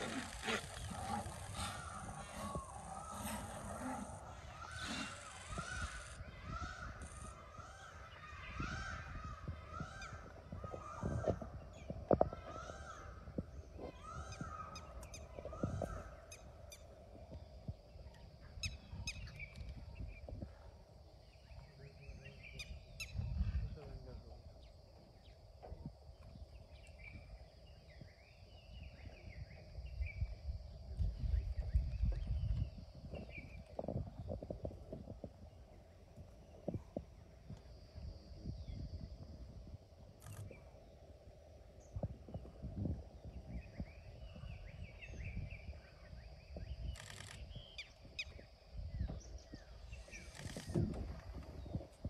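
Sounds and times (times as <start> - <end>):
birds chirping and calling: 0.0 - 16.9
birds chirping: 0.0 - 34.6.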